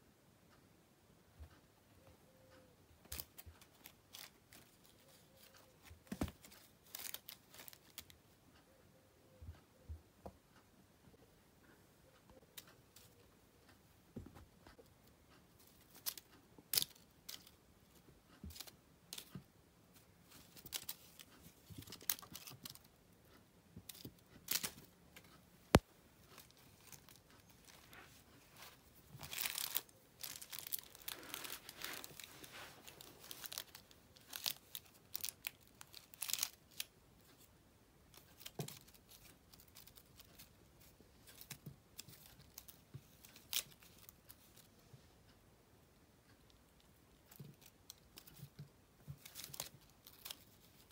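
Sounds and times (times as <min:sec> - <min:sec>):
foil pompom crinkling: 0:26.4 - 0:36.9, 0:49.1 - 0:50.9.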